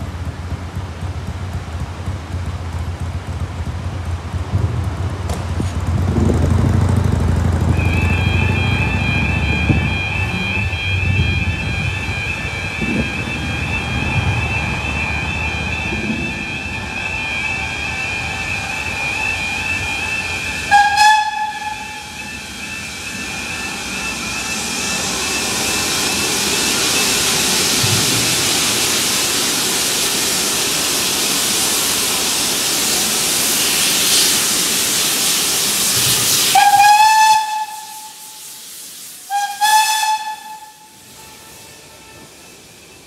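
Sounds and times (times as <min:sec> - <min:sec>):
steam whistle blast: 0:07.7 - 0:26.2, 0:36.0 - 0:42.3
hiss of steam: 0:18.8 - 0:43.0.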